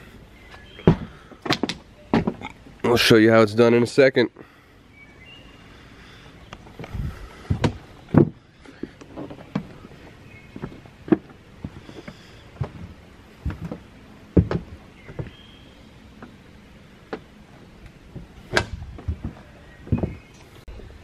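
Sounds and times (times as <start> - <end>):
footsteps: 6.6 - 15.4, 18.1 - 20.6.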